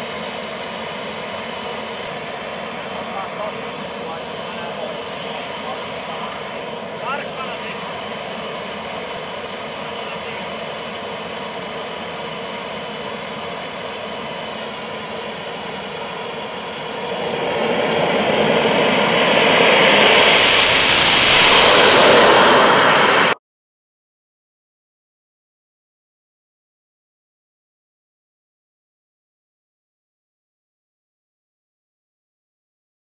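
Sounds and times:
model jet engine whine: 0.0s - 23.4s.

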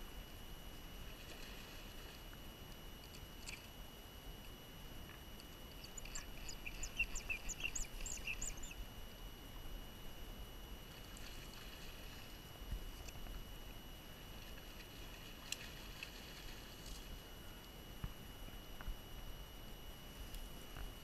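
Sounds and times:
bird chirping: 5.8s - 8.8s.

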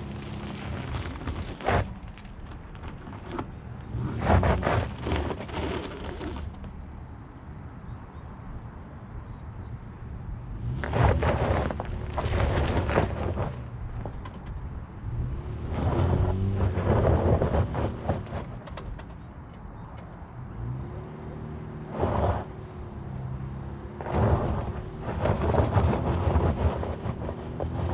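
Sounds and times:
tyres crunching over loose dirt: 0.0s - 7.2s, 10.5s - 27.9s
truck engine revving: 15.0s - 18.6s, 20.6s - 27.9s.

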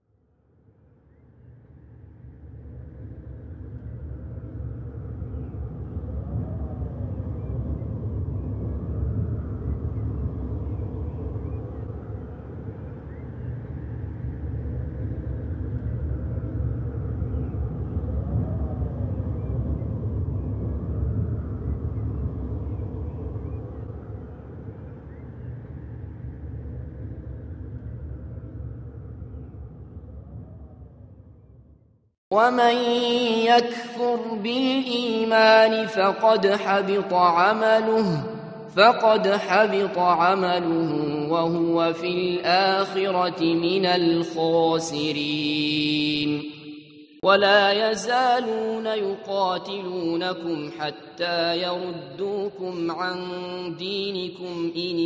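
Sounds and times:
rising and falling whistling tones: 0.6s - 31.9s
steady low rumble: 0.6s - 32.0s.

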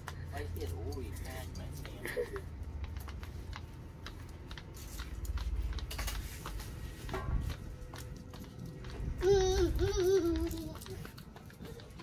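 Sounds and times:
light clicks and taps: 0.0s - 12.0s
steady low hum: 0.0s - 12.0s.

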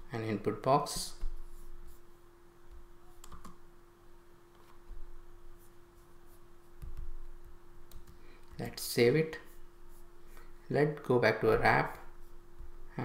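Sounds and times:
faint steady hum: 0.0s - 13.0s
computer keyboard keystrokes: 3.2s - 3.6s.

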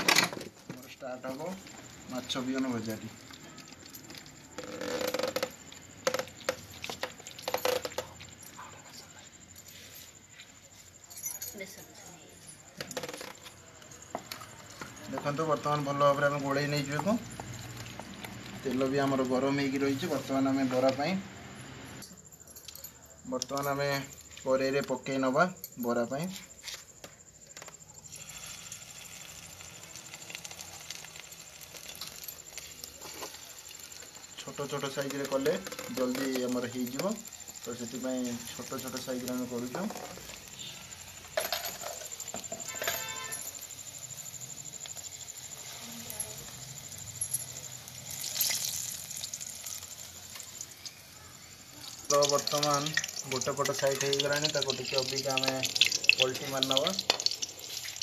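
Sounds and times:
batter frying in hot oil: 0.0s - 8.1s, 14.4s - 22.0s, 28.0s - 58.0s.

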